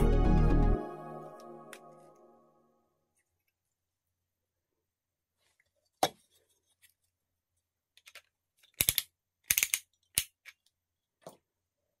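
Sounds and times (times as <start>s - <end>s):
plastic parts clicking together: 8.0s - 10.8s.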